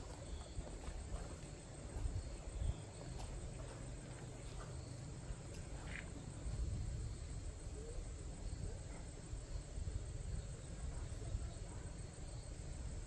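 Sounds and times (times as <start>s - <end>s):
insects chirping: 0.0s - 13.0s
low uneven rumble: 0.0s - 13.0s.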